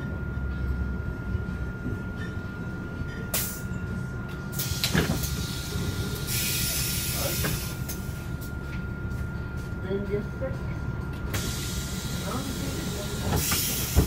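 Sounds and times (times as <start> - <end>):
bus engine idling: 0.0 - 14.0
compressed air hissing: 4.6 - 7.8, 11.4 - 14.0.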